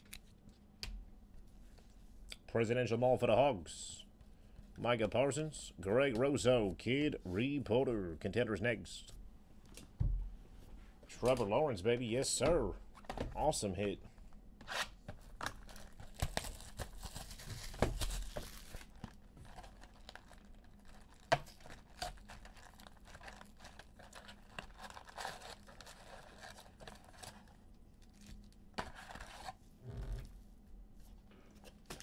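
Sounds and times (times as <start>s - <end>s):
foil packs rustling: 15.2s - 29.5s
wrapping tearing and crinkling: 15.2s - 29.6s.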